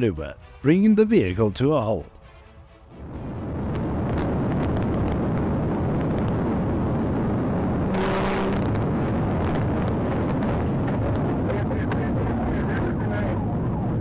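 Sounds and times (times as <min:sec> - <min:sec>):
engine tyre and wind rumble: 0:02.1 - 0:14.0
brief steady tone: 0:07.9 - 0:08.7.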